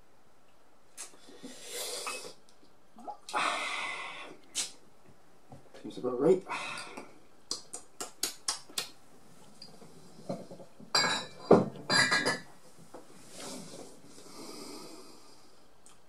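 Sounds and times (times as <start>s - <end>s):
soft hiss: 0.0s - 11.3s
glass clinks and knocks: 10.9s - 12.5s.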